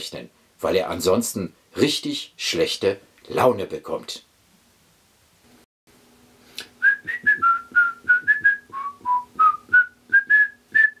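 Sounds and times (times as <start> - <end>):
whistled tune: 6.8 - 11.0.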